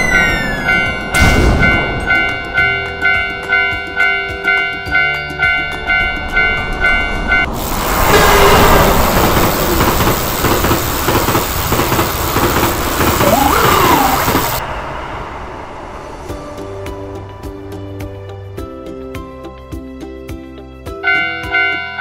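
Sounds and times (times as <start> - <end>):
rising and falling tone: 0.0 - 3.0, 6.2 - 16.5
background music: 0.0 - 7.6, 16.0 - 22.0
train wheels clattering on rails: 7.4 - 14.6.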